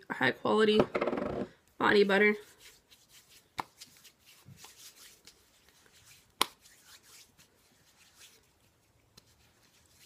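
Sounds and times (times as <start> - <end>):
hands rubbing skin: 2.4 - 10.0.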